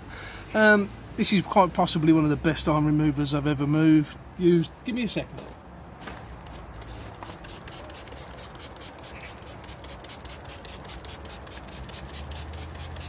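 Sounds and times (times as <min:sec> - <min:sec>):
spray bottle hissing: 0:06.8 - 0:13.0.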